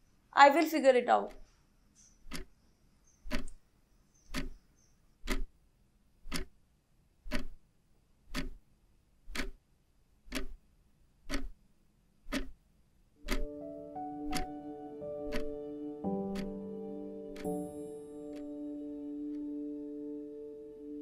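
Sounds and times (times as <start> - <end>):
analog clock ticking: 1.2 - 1.5, 2.1 - 2.6, 3.2 - 3.6, 4.2 - 5.6, 6.2 - 6.6, 7.2 - 7.7, 8.3 - 8.7, 9.3 - 9.6, 10.3 - 10.6, 11.2 - 11.6, 12.2 - 12.6, 13.2 - 19.8
music: 13.2 - 21.0.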